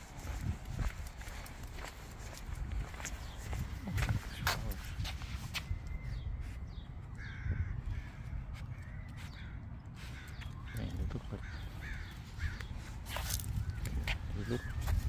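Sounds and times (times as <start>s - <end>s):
bird calling: 5.6s - 15.0s.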